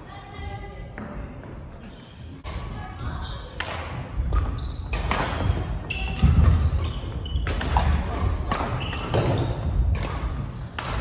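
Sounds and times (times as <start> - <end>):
rackets hitting shuttlecock: 3.5 - 11.0
shoes squeaking: 4.3 - 9.9.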